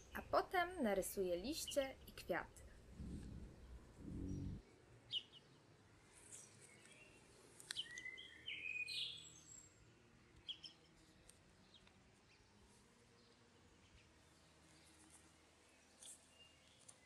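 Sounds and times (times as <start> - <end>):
birds chirping: 3.0 - 5.4.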